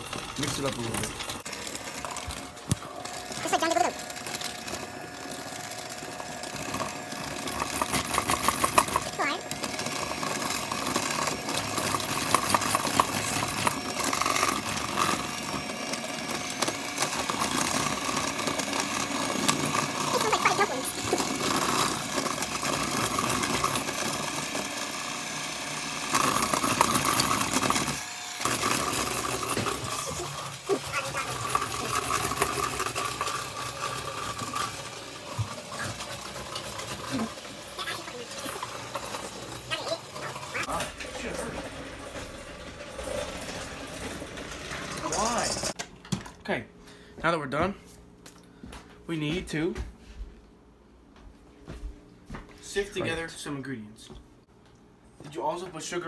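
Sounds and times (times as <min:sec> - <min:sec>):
beaters clicking in bowl: 0:00.0 - 0:24.9, 0:26.0 - 0:41.3, 0:43.5 - 0:45.8
hand mixer motor whir: 0:00.0 - 0:45.8.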